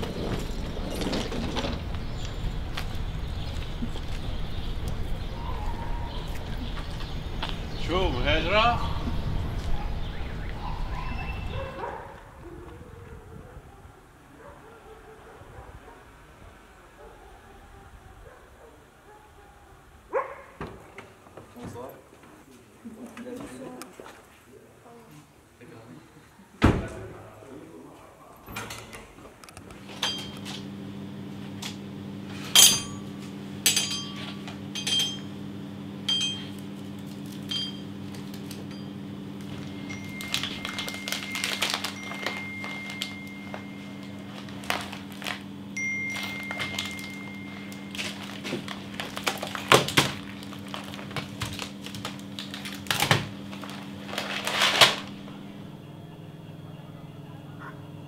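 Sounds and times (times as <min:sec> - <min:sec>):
electrical hum of coolers: 0:00.0 - 0:58.0
packets rustling: 0:36.6 - 0:55.4.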